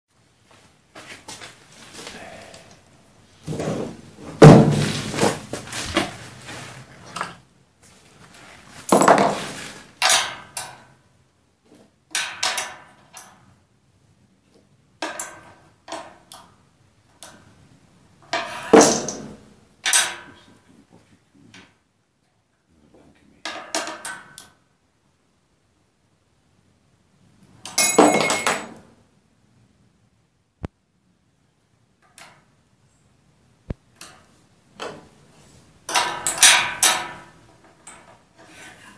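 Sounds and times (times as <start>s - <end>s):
metal knocks and clanks: 3.5s - 6.2s, 18.3s - 20.3s, 35.9s - 38.2s.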